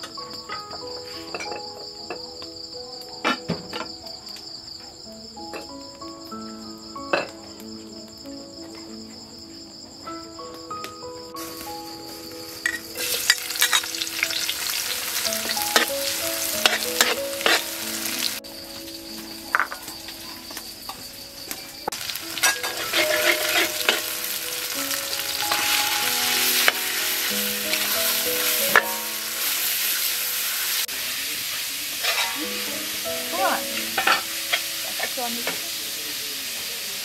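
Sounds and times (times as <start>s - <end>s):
meat sizzling in a wok: 11.0s - 37.0s
metal ladle scraping a wok: 22.4s - 24.4s, 32.0s - 32.4s.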